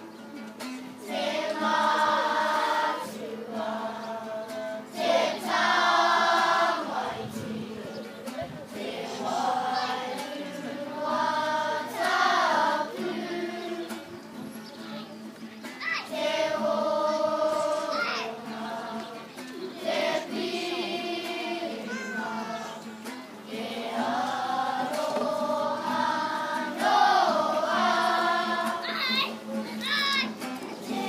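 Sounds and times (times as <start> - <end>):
acoustic guitar: 0.0 - 31.0
children singing in unison: 0.9 - 14.9, 15.8 - 29.6, 30.3 - 31.0.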